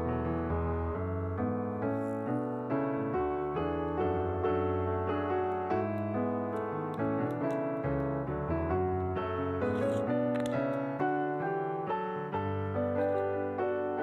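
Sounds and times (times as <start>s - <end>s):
gentle piano melody: 0.0s - 14.0s.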